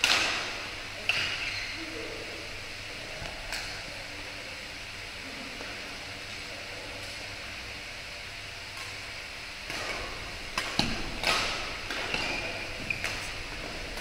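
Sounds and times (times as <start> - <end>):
rackets hitting shuttlecock: 0.0 - 1.5, 9.6 - 14.0
shoes squeaking on court: 1.2 - 1.8, 12.1 - 13.4.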